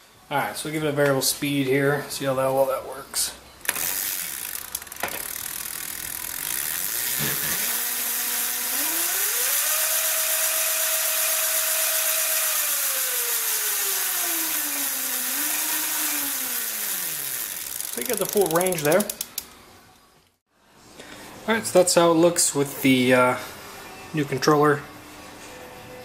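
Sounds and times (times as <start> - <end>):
electric motor whining: 3.7 - 18.6
mechanical rattle: 3.7 - 19.6.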